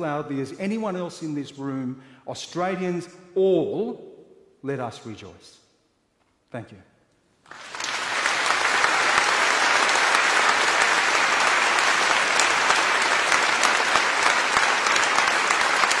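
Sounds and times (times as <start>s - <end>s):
large audience applauding: 7.4s - 16.0s.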